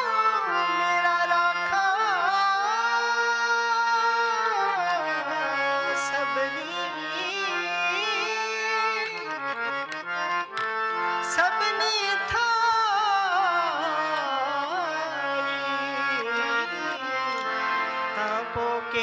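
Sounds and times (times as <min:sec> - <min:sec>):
man singing: 0:00.0 - 0:09.6, 0:11.2 - 0:19.0
harmoniums playing melody: 0:00.0 - 0:19.0.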